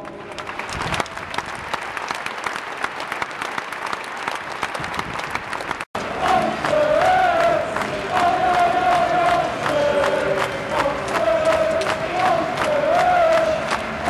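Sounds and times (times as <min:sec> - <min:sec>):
crowd applauding: 0:00.0 - 0:14.0
crowd singing a chant: 0:06.0 - 0:14.0.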